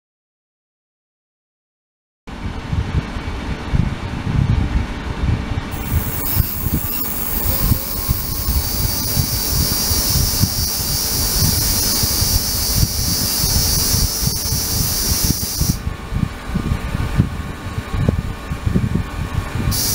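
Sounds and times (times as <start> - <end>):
ultrasonic cleaner high-pitched hiss: 5.7 - 15.8.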